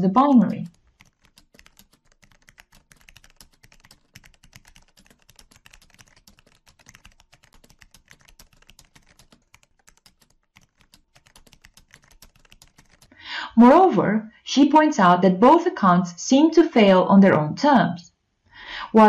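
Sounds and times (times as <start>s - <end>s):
fast keyboard typing: 0.0s - 13.2s.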